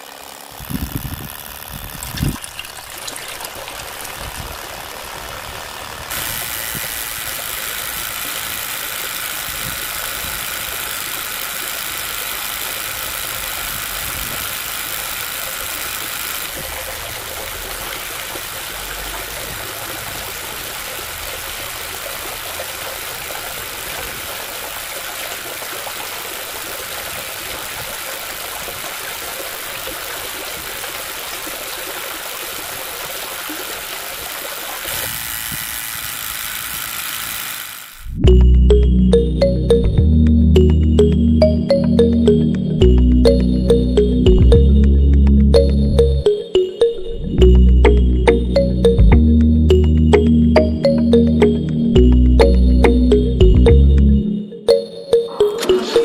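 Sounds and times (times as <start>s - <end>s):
small electric motor whirring: 0.0s - 38.3s.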